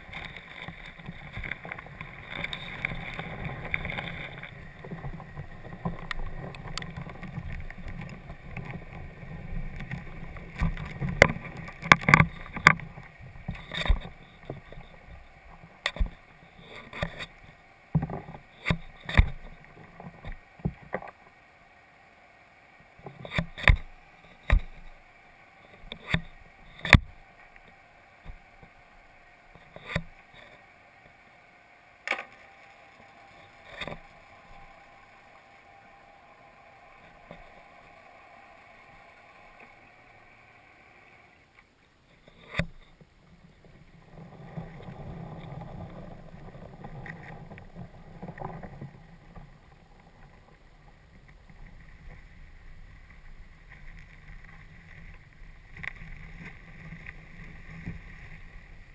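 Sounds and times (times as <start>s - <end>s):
rushing water: 0.0s - 42.8s.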